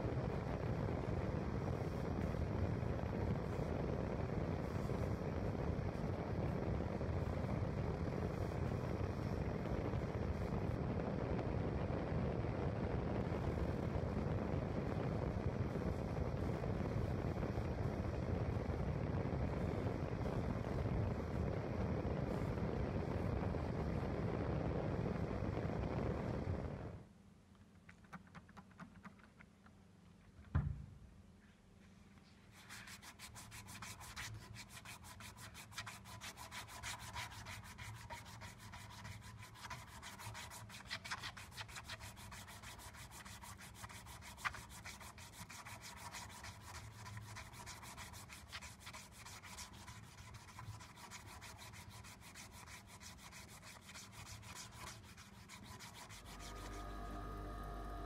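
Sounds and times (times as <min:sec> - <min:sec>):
single knock: 0:30.5 - 0:30.9
abrasive strip sanding knife handle: 0:32.6 - 0:57.0.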